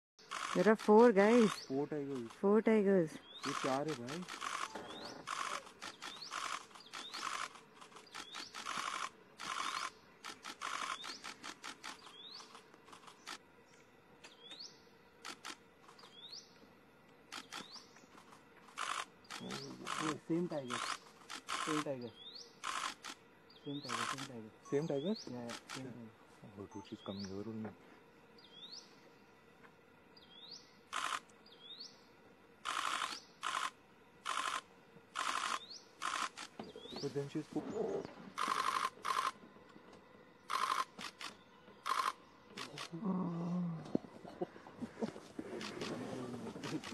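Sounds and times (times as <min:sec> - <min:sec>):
camera shutters firing in bursts: 0:00.2 - 0:02.4, 0:03.3 - 0:13.4, 0:15.2 - 0:16.1, 0:17.3 - 0:17.8, 0:18.7 - 0:21.9, 0:22.6 - 0:23.2, 0:23.8 - 0:24.3, 0:25.4 - 0:26.0, 0:30.9 - 0:31.3, 0:32.6 - 0:36.6, 0:38.4 - 0:39.4, 0:40.5 - 0:43.0, 0:45.4 - 0:46.9
harsh rasping bird calls: 0:00.2 - 0:13.4, 0:17.3 - 0:26.2, 0:30.2 - 0:39.4, 0:40.4 - 0:46.9.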